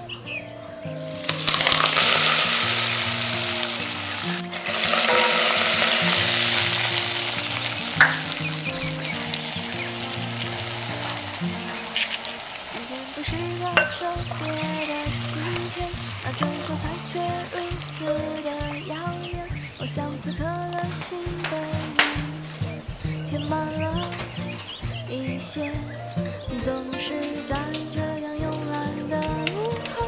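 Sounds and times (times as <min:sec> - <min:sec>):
hot oil sizzling and bubbling: 0:01.2 - 0:18.4.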